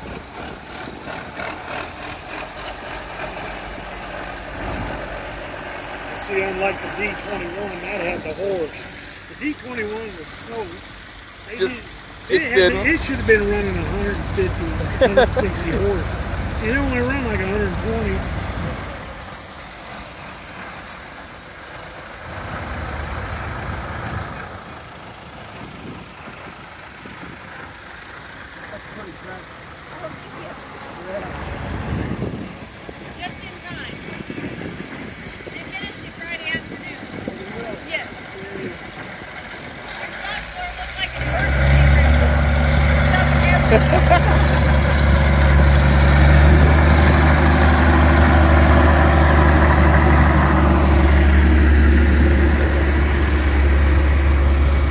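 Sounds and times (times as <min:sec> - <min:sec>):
tractor engine running: 0:00.0 - 0:54.9.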